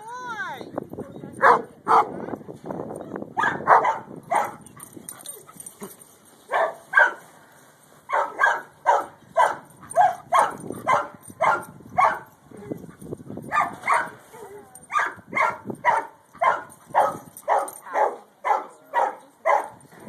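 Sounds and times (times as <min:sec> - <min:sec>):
dog barking: 0:01.4 - 0:02.2, 0:03.4 - 0:04.6, 0:06.5 - 0:07.2, 0:08.1 - 0:12.3, 0:13.5 - 0:19.8.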